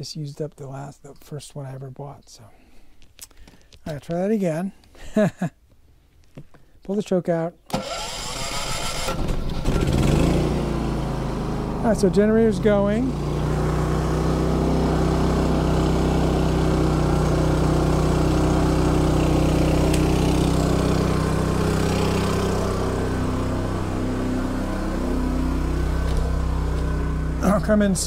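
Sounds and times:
generator running: 7.7 - 28.0.

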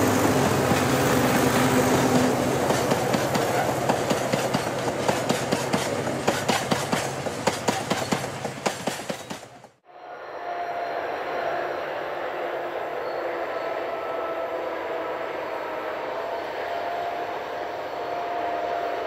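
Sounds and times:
train wheels clickety-clack: 0.0 - 9.8
diesel locomotive engine hum: 0.0 - 19.0.

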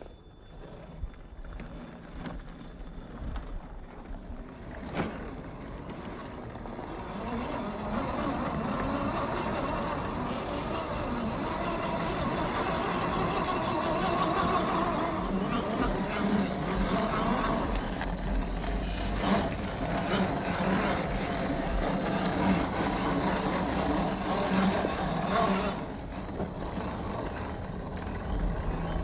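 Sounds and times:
electric motor and gears whirring: 0.0 - 29.0.

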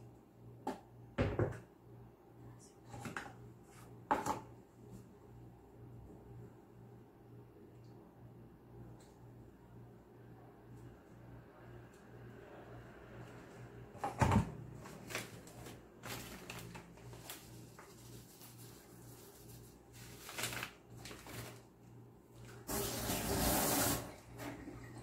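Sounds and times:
packet rustling: 14.8 - 21.7.

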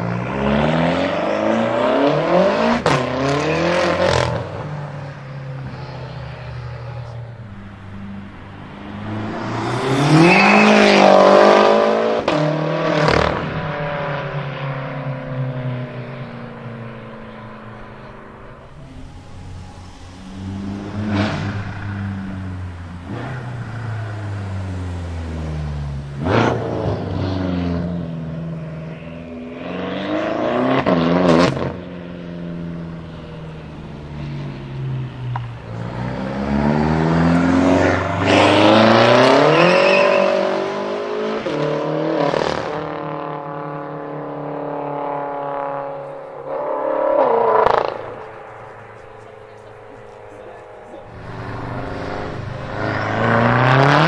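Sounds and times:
car engine accelerating hard: 0.0 - 54.0
exhaust cracks on upshifts: 47.1 - 54.0.

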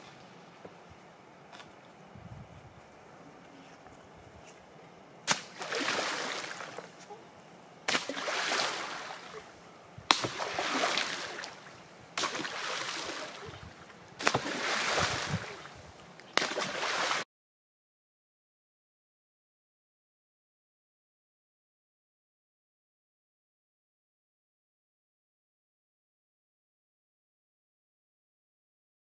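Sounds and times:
fish slapping into water: 5.3 - 6.9, 7.9 - 9.4, 10.1 - 13.6, 14.2 - 15.7, 16.4 - 17.2.

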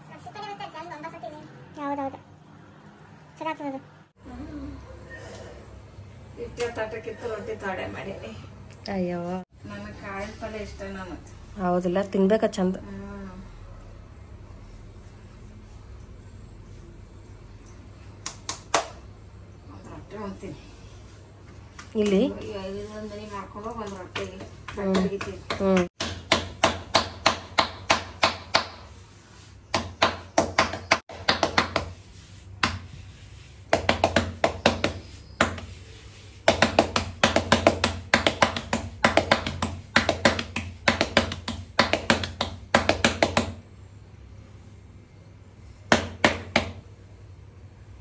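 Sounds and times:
palms patting dough: 21.4 - 43.7.

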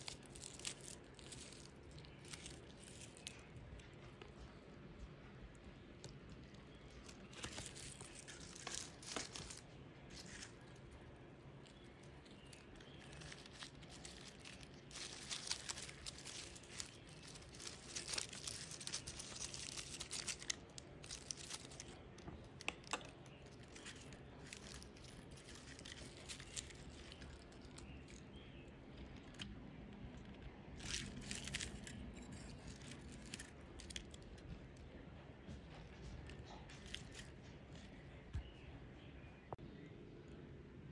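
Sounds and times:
hands rustling dry bark chips: 0.0 - 4.6, 6.0 - 34.5, 36.5 - 38.6.

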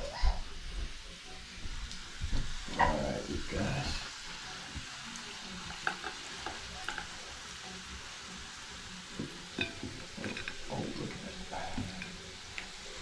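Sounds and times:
potatoes sizzling in frying pan: 0.6 - 13.0
spatula tapping pan: 5.7 - 7.1, 9.2 - 10.7.

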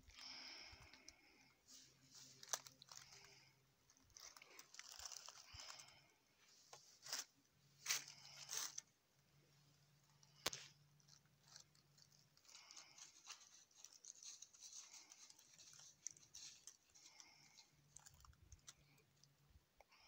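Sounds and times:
dry leaves rustling: 2.0 - 3.4, 4.0 - 6.0, 11.0 - 18.8.

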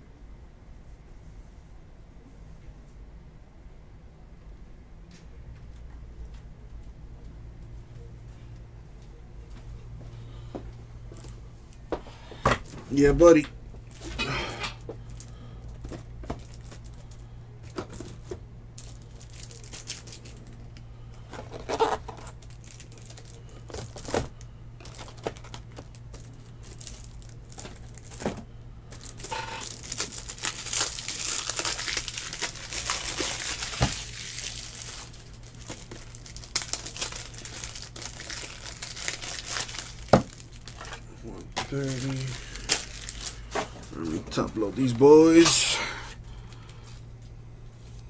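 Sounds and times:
steady low hum: 0.0 - 48.0
plastic wrapping crinkling: 13.9 - 45.6.

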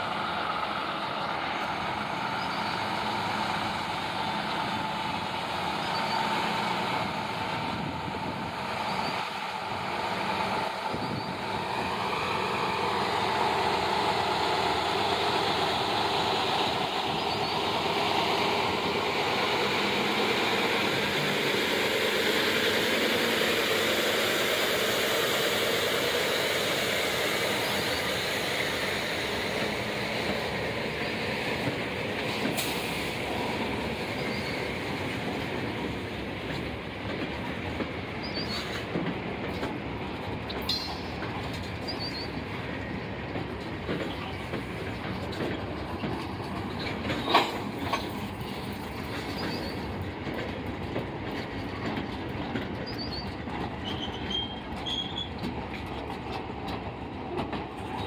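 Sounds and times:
train wheels rumbling on rails: 0.0 - 58.0
high wheel squeaks: 46.0 - 50.0, 52.8 - 56.1.

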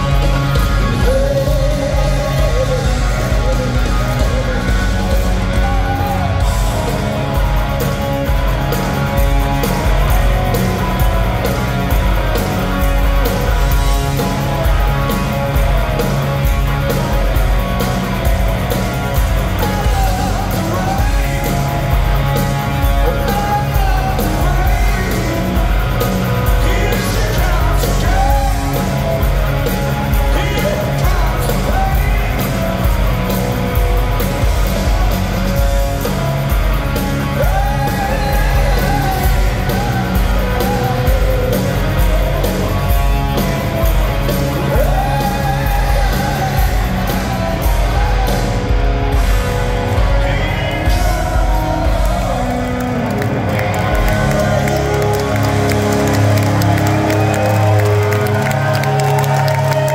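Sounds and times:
male lead vocal: 0.0 - 7.0, 19.5 - 29.3, 29.9 - 32.9, 37.2 - 42.3, 44.6 - 48.9, 49.5 - 55.4
live rock band playing: 0.0 - 59.9.

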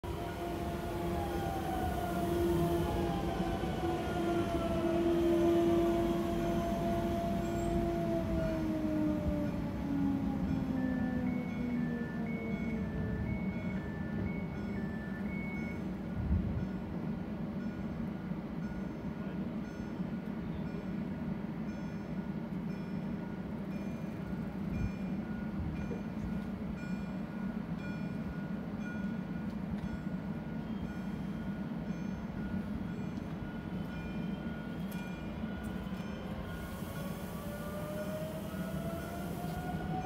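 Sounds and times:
train low hum: 0.0 - 40.0
train motor whine: 0.1 - 15.2, 33.2 - 40.0.

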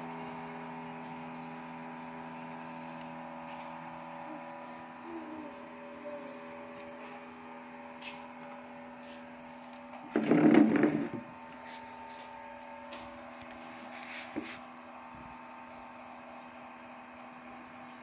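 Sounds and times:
low hum: 0.0 - 12.1.

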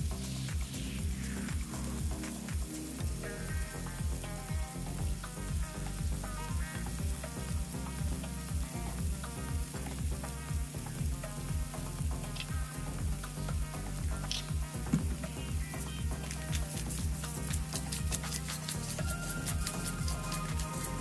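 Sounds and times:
background music with beat: 0.0 - 21.0
vegetables sizzling in skillet: 0.1 - 21.0
tongs stirring food: 15.7 - 21.0.

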